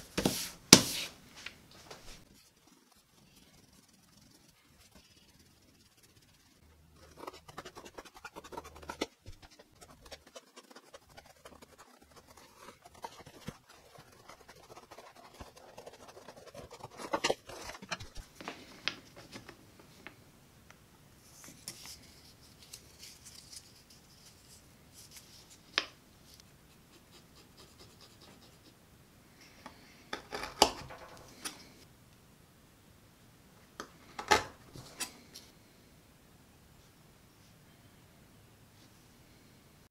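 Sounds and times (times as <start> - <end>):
pen tracing on paper: 2.6 - 18.2.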